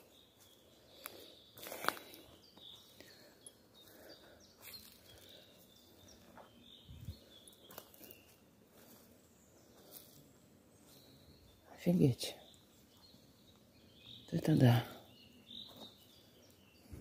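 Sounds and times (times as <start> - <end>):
footsteps on twigs and leaves: 0.0 - 3.0, 3.8 - 11.1.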